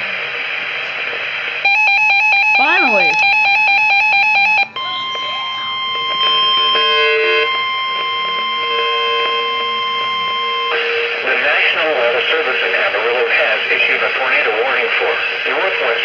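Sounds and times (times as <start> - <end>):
weather radio alarm tone: 1.6 - 13.3
fast electronic beeps: 4.6 - 11.2.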